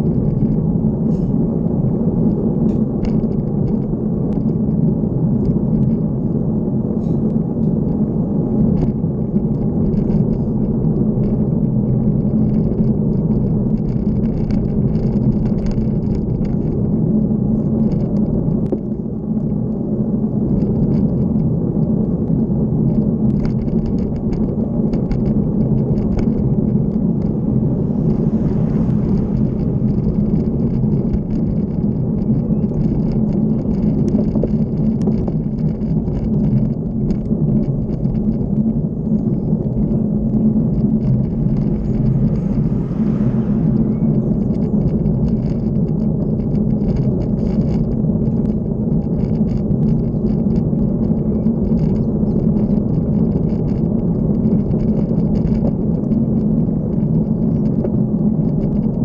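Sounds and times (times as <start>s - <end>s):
wind and road rumble: 0.0s - 59.0s.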